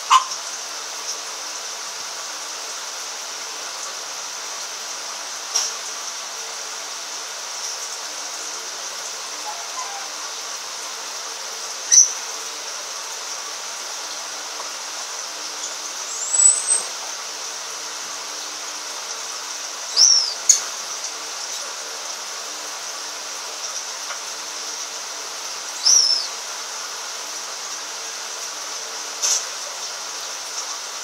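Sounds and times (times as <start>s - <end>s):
steady high hiss: 0.0s - 31.0s
lovebird shrill chirps: 9.4s - 10.1s, 11.9s - 12.1s, 16.1s - 16.9s, 19.9s - 20.6s, 25.8s - 26.3s.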